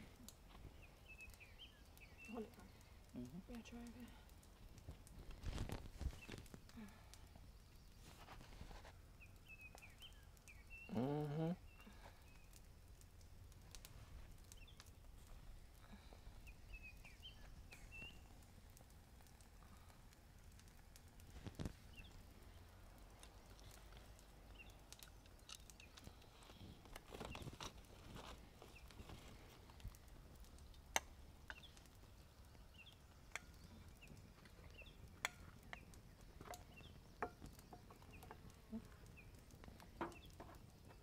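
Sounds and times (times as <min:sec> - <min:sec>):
faint bird chirps: 0:09.2 - 0:12.6, 0:15.8 - 0:18.4
person humming briefly: 0:10.9 - 0:11.6.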